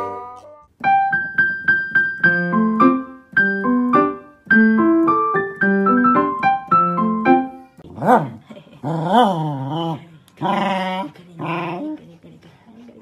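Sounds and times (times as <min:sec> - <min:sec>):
piano music: 0:00.0 - 0:07.8.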